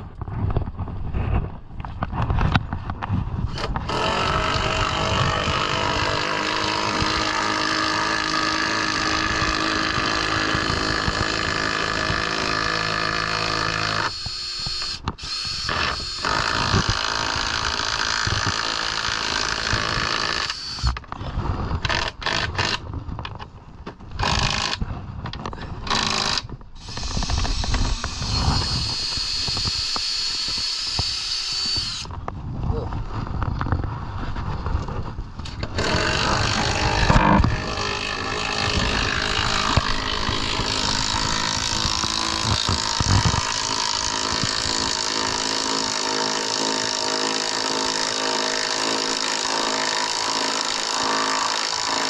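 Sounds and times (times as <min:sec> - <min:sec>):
cordless drill motor whining: 0:03.5 - 0:21.1, 0:25.8 - 0:32.2, 0:35.6 - 0:52.0.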